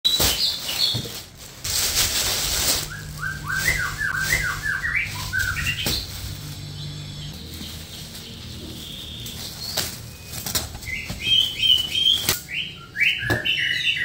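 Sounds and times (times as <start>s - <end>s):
plastic bag rustling and crinkling: 0.1s - 12.4s
bird chirping: 2.8s - 14.0s.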